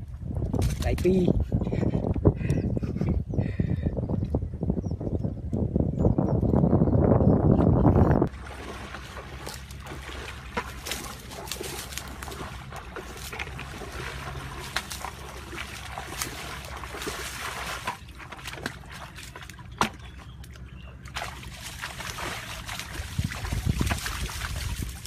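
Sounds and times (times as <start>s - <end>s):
water sloshing and trickling: 8.3s - 25.0s.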